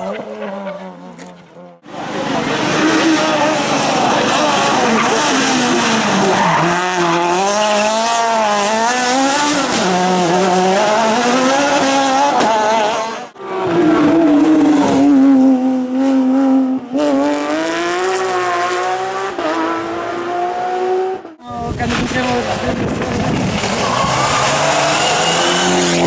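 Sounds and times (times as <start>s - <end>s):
rally car engine revving: 0.0s - 26.0s
tyre squeal: 23.7s - 26.0s.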